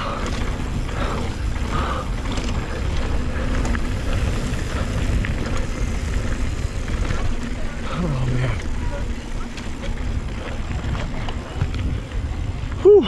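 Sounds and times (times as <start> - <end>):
heavy breathing: 0.0 - 8.2
clicks and knocks from bike: 0.0 - 12.9
mountain bike rumbling and rattling: 0.0 - 13.0
wind on microphone: 8.5 - 13.0.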